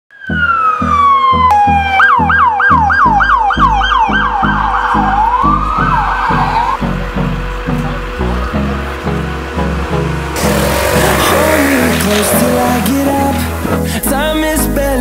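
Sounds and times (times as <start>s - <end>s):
police siren wailing and yelping: 0.1s - 13.7s
background music with steady beat: 0.1s - 15.0s.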